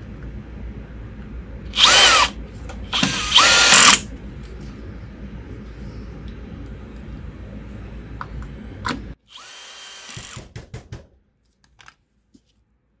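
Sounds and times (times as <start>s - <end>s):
cordless drill whining: 1.8s - 2.4s, 3.0s - 4.0s, 9.3s - 10.4s.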